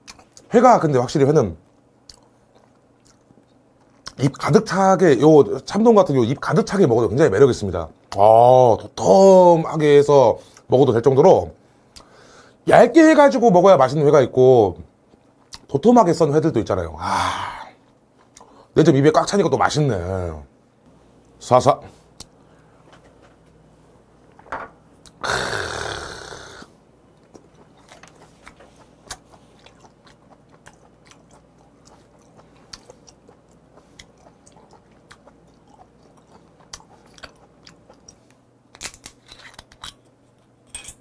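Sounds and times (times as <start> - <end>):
breathy burst: 25.2 - 26.7
wet chewing with smacks: 27.2 - 38.4.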